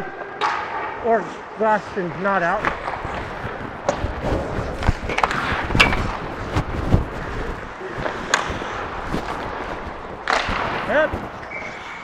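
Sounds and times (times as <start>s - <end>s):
hockey sticks and puck clacking: 0.0s - 1.4s, 2.0s - 12.0s
skate blades scraping ice: 2.0s - 12.0s.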